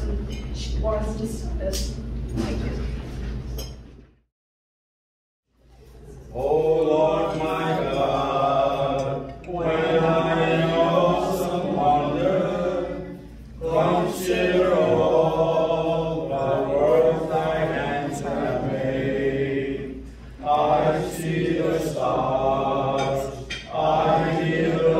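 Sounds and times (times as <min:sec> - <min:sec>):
men singing together: 0:06.3 - 0:24.9.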